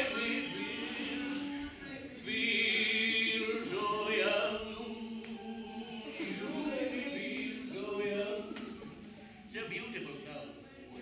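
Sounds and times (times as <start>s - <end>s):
voices singing together: 0.0s - 11.0s.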